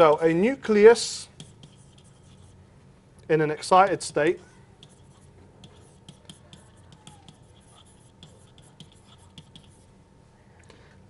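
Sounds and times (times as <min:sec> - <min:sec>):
stylus scratching on pen tablet: 0:00.0 - 0:02.6, 0:03.9 - 0:09.9
low steady hum: 0:00.0 - 0:11.0.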